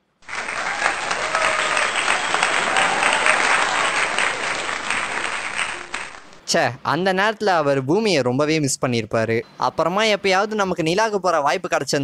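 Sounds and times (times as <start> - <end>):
crowd applauding: 0.0 - 6.4.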